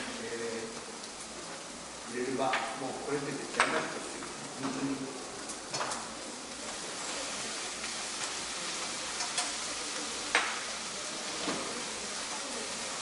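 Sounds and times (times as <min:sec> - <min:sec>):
fish sizzling in a pan: 0:00.0 - 0:13.0
utensil clicking against pan: 0:09.1 - 0:09.6.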